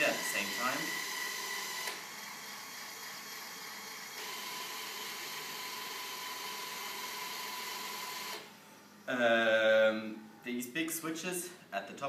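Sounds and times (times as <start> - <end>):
electric motors whirring: 0.0 - 8.5.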